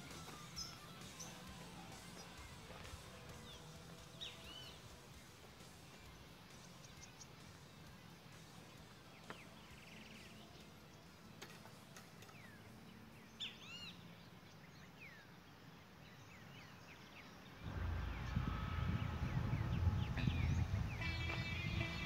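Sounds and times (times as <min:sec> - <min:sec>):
faint birds chirping: 0:00.0 - 0:22.0
loud low-pitched sound: 0:17.6 - 0:22.0.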